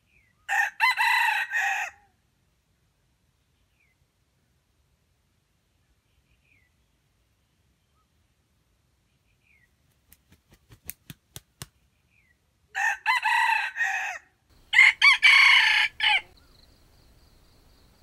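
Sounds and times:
rooster crowing: 0.5 - 2.0, 12.7 - 16.4.

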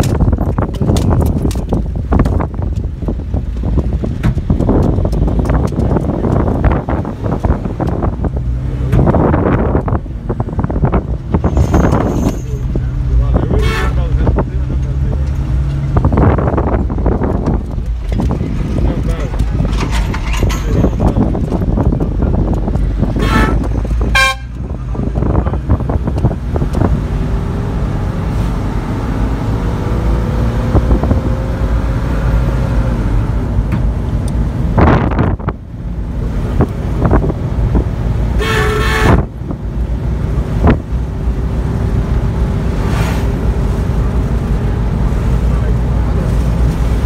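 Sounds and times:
engine and road rumble: 0.0 - 47.0
vehicle horn toots: 13.5 - 14.2, 23.1 - 24.6, 38.4 - 39.3.

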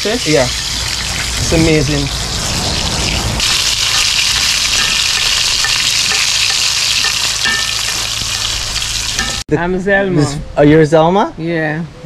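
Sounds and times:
fish sizzling in hot oil: 0.0 - 9.4.

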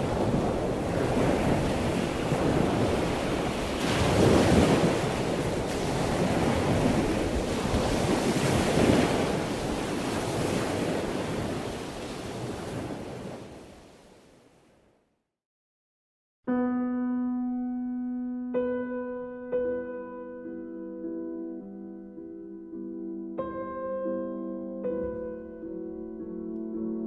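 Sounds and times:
ocean surf breaking on beach: 0.0 - 14.3.

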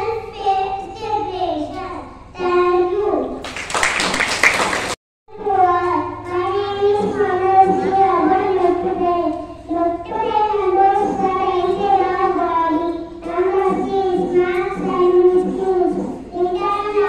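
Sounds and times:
girl singing into a microphone: 5.3 - 17.0.

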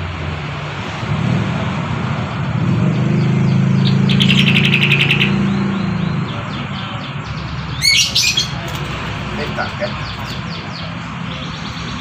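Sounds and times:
low engine hum: 0.0 - 7.8
loud bird call: 3.3 - 6.6, 7.7 - 8.6.

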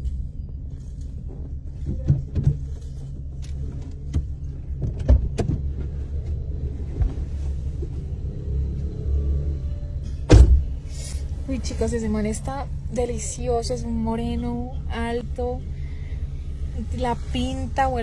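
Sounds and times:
car engine idling: 0.0 - 18.0
loud thump: 10.3 - 10.8.

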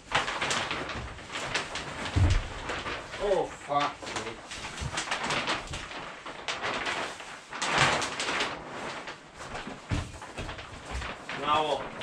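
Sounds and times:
dull thumps: 0.0 - 3.1
plastic sheet rustling and crinkling: 0.0 - 12.0.

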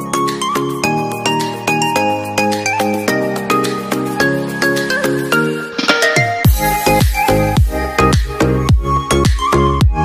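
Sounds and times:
background music with regular beat: 0.0 - 10.0.

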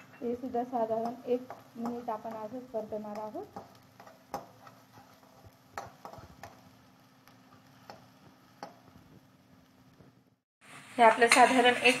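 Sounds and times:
spoon scraping a pan: 0.0 - 6.8, 11.2 - 12.0
faint frying sizzle: 0.0 - 12.0.

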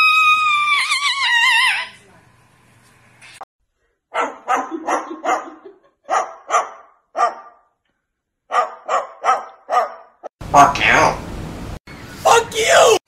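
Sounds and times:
cockatoo mimicking dog barks: 8.5 - 11.2.

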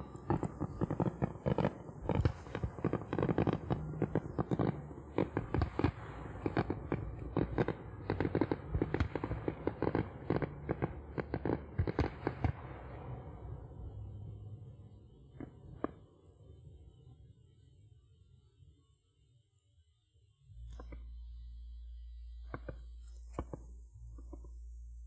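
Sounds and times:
fireworks bursts and cracks: 0.0 - 13.5, 22.5 - 23.7
low rumble: 0.0 - 17.0, 20.5 - 25.0.

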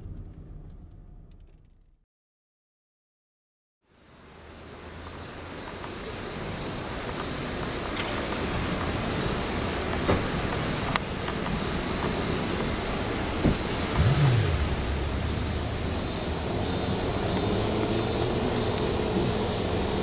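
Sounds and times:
low rumble: 0.0 - 2.0, 13.8 - 18.1.

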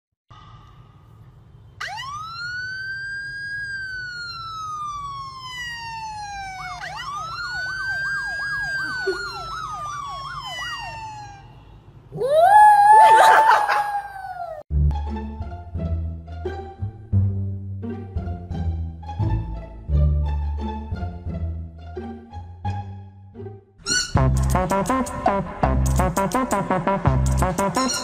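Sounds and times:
siren wailing: 1.8 - 14.6
dog howling: 12.2 - 14.6.

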